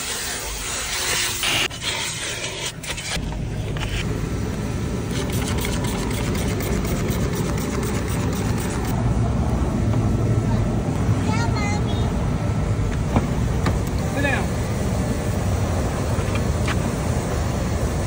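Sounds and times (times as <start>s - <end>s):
loud even hiss: 0.0s - 3.2s
car engine rumbling: 3.1s - 18.0s.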